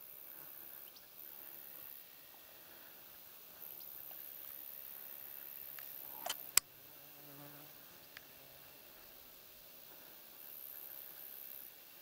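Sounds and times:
faint insect buzzing: 0:00.0 - 0:12.0
sharp click: 0:05.8 - 0:06.7.

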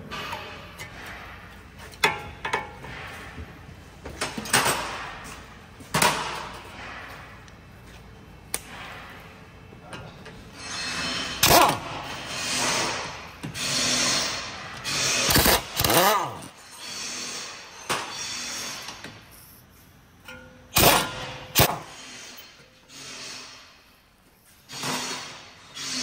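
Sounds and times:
impact wrench running: 0:10.9 - 0:19.2, 0:20.7 - 0:23.8.

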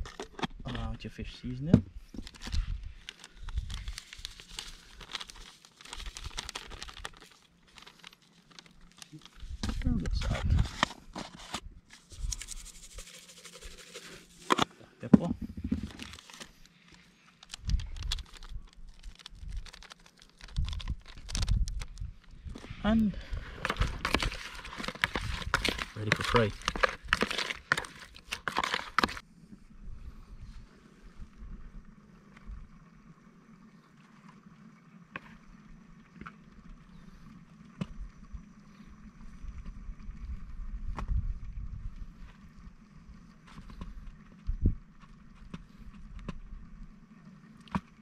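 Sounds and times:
wind rumbling on microphone: 0:01.8 - 0:04.0, 0:09.4 - 0:10.8, 0:17.5 - 0:19.8, 0:20.4 - 0:27.1, 0:37.9 - 0:46.9
plastic sachet crinkling and tearing: 0:02.2 - 0:09.6, 0:15.7 - 0:22.2, 0:23.6 - 0:29.2.

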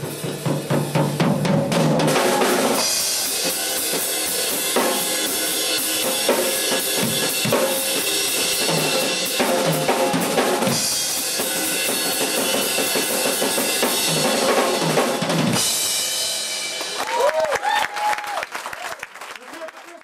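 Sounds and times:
cymbals crashing: 0:02.1 - 0:14.6, 0:15.5 - 0:17.1
person whooping: 0:17.0 - 0:19.0.

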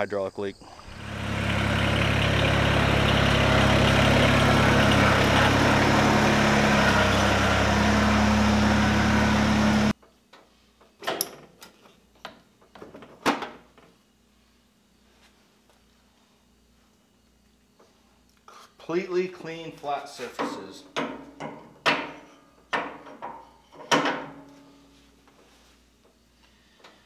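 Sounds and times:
diesel tractor engine running: 0:00.8 - 0:09.9.

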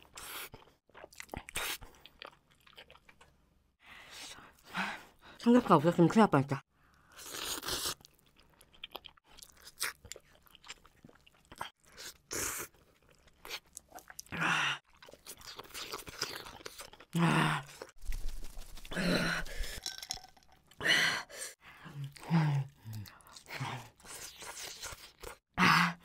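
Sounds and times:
chewing noodles: 0:00.0 - 0:03.4, 0:07.0 - 0:20.8.

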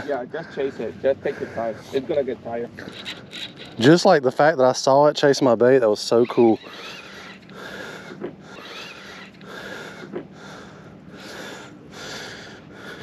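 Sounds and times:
faint steady hum: 0:00.0 - 0:13.0
person breathing hard: 0:06.7 - 0:13.0.

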